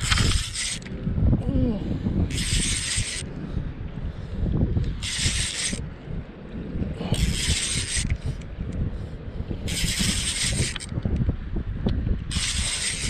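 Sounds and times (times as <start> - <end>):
spinning reel whirring: 0.0 - 1.1, 2.2 - 3.4, 4.8 - 5.9, 7.0 - 8.5, 9.6 - 11.3, 12.2 - 13.0
wind rumble on microphone: 0.0 - 13.0.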